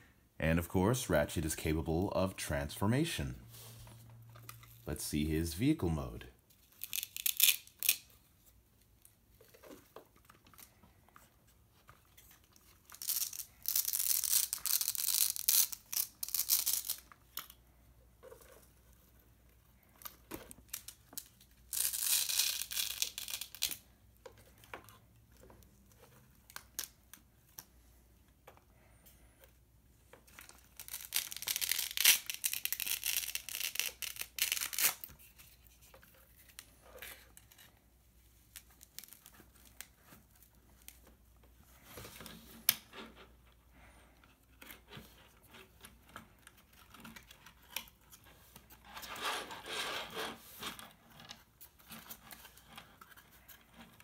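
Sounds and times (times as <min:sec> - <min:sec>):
velcro ripping apart: 0:06.6 - 0:08.1, 0:12.8 - 0:17.6, 0:20.7 - 0:23.9, 0:30.4 - 0:35.6, 0:38.5 - 0:39.9.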